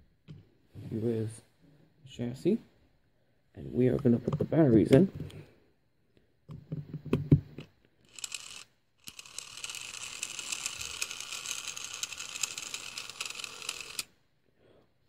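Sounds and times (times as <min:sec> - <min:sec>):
toy motor whirring: 0:08.0 - 0:14.1.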